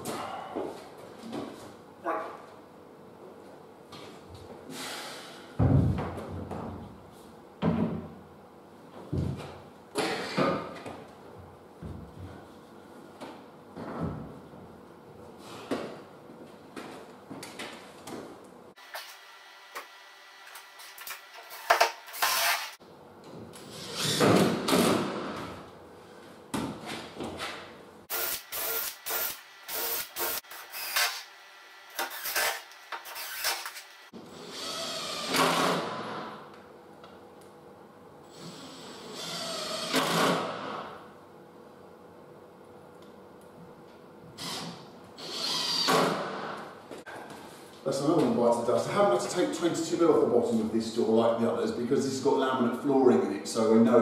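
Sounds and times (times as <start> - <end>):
cordless drill driving screws: 21.5 - 22.8, 32.0 - 33.9, 45.2 - 46.2.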